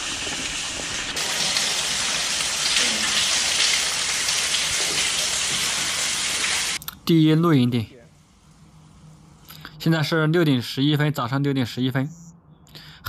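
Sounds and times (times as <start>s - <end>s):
water falling and splashing: 0.0s - 6.8s.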